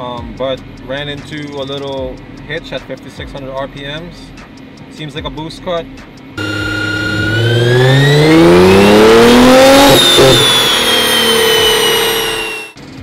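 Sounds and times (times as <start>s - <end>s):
car engine at full throttle: 6.4s - 12.8s.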